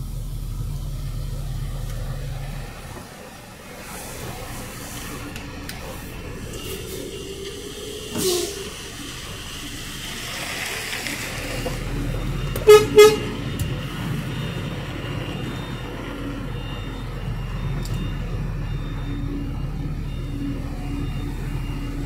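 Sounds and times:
truck engine rumbling: 0.0s - 22.0s
vehicle horn toots: 8.1s - 8.8s, 12.4s - 13.7s.

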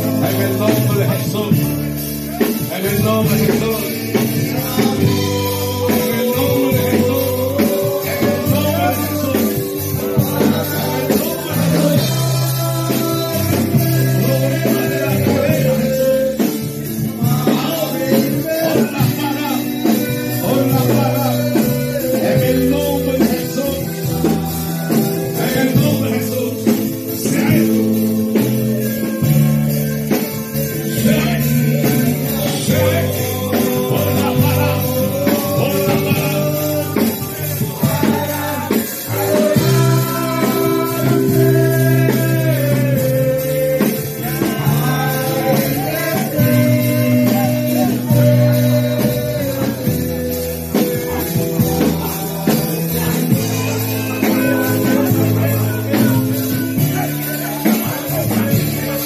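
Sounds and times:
band accompaniment: 0.0s - 59.0s
voices singing worship song: 0.0s - 59.0s.

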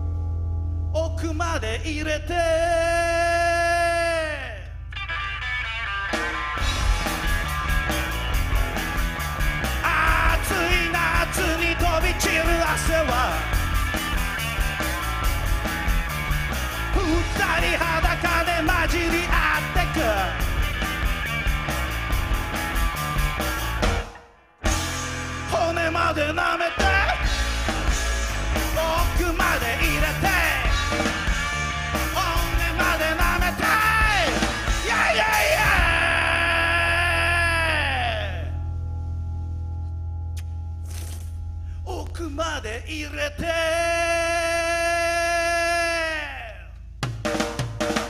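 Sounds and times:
rock band playing: 4.8s - 41.8s, 47.0s - 48.0s
person yelling: 33.5s - 38.5s, 45.4s - 46.7s.

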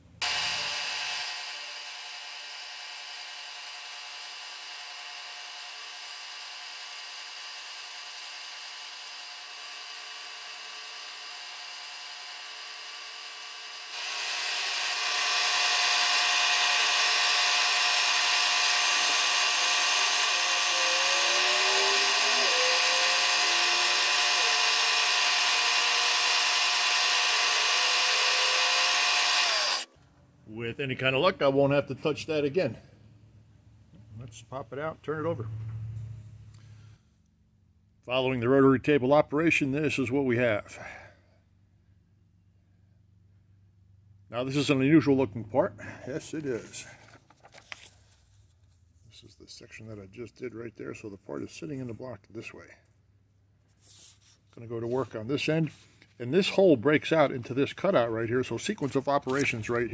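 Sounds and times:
milling machine spindle whirring: 0.2s - 29.9s
saw cutting brass: 0.2s - 29.9s.

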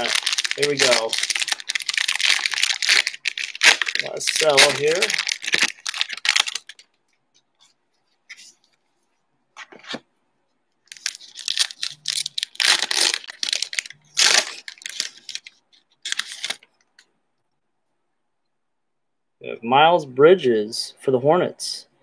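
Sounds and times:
plastic wrapper tearing and crinkling: 0.0s - 7.0s, 10.9s - 16.7s.

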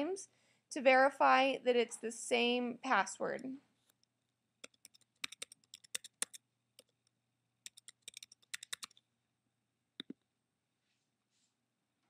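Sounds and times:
computer keyboard typing: 4.6s - 9.0s.

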